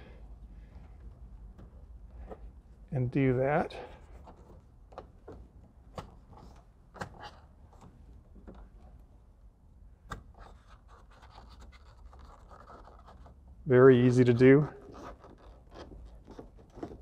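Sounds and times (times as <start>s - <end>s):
plastic tool scraping car trim: 14.8s - 17.0s.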